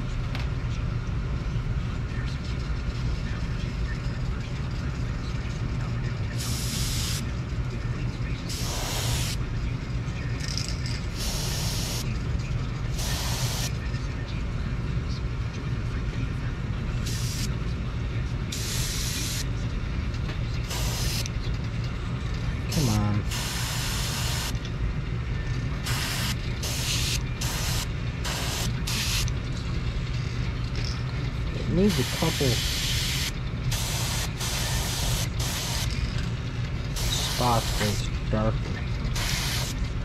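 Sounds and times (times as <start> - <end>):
steady low hum: 0.0 - 40.0
airbrush spraying hisses: 8.5 - 9.4, 13.0 - 13.7, 25.9 - 29.2, 32.0 - 35.9, 37.0 - 37.8, 39.2 - 39.7.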